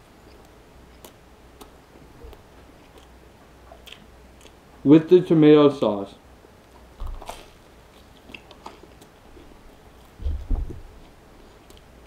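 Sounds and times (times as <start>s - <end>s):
quiet chewing: 0.2s - 4.8s, 6.6s - 12.0s
crunch of biting sandwich: 7.0s - 9.5s
low thumping: 10.2s - 11.0s.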